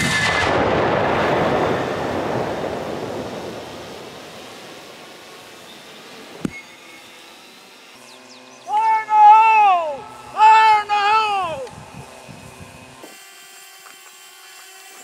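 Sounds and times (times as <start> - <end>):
echoing blast: 0.0 - 5.2.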